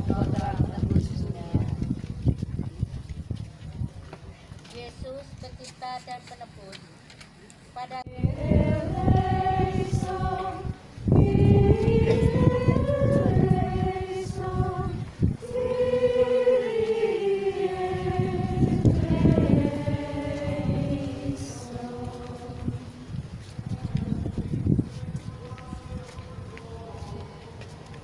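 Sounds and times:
wind rumbling on microphone: 0.0 - 5.6, 8.0 - 28.0
group singing a hymn: 8.1 - 28.0.

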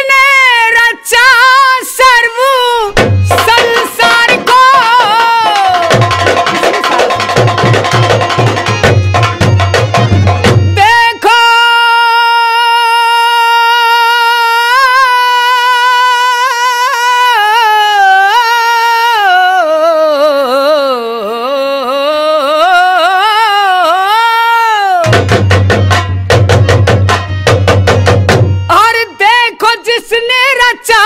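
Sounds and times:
fast drumming: 2.9 - 10.9, 25.0 - 28.9
man singing long high note: 10.7 - 25.2.

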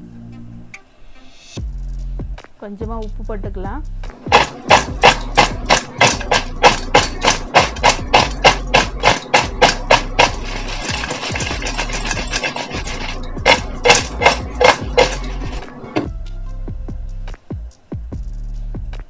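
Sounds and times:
potato pieces rattling in metal bowl: 4.2 - 16.1.

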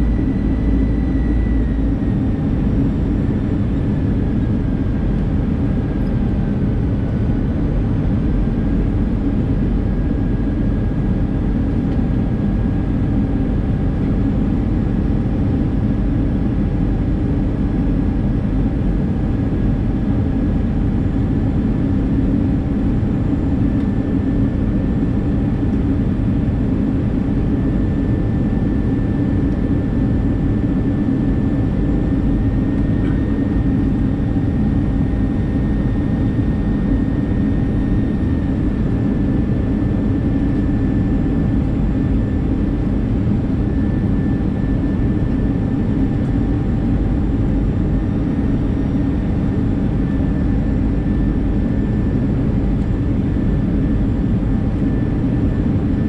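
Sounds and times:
fan whine: 0.0 - 6.4
jet engine and airflow rush: 0.0 - 56.0.

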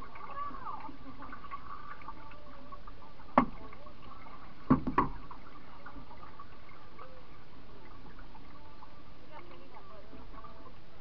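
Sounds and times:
knocks on canoe hull: 3.4 - 3.6, 4.7 - 5.2.

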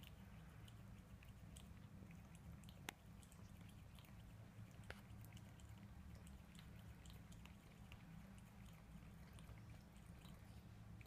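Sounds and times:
cat licking wet clicks: 0.0 - 11.0
low steady hum: 0.0 - 11.0.

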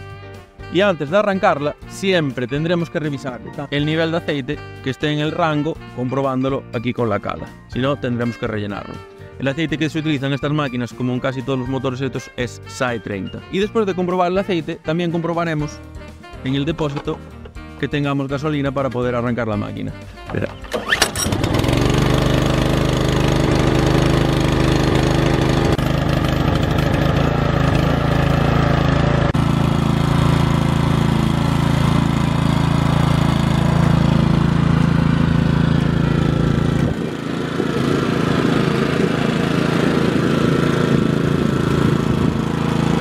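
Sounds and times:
brushcutter engine running: 20.1 - 43.0.

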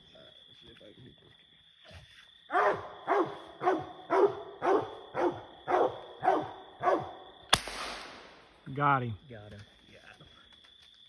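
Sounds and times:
dog barking: 2.5 - 7.2.

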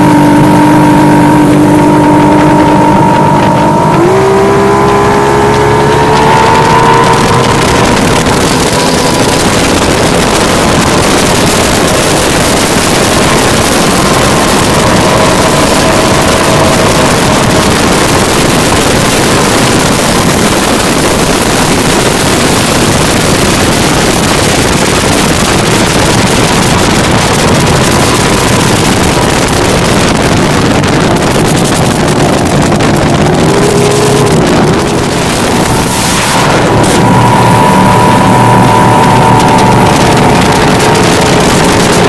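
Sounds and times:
speedboat engines: 0.0 - 42.0
wind on microphone: 0.0 - 42.0.

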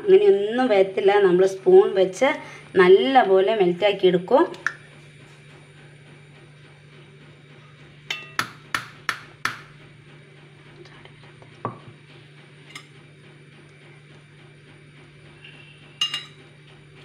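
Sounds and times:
metal knocks against steel bowl: 8.1 - 9.7.

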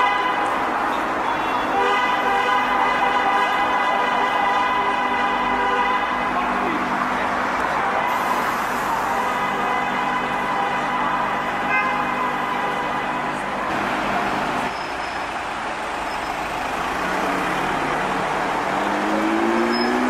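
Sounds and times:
city street traffic: 0.0 - 20.0
engine note rising: 16.6 - 20.0.

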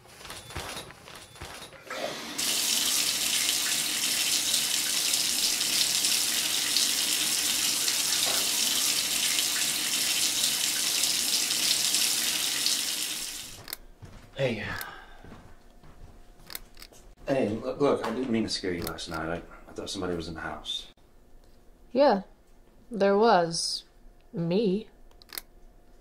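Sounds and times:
shower spraying water: 1.9 - 13.6.

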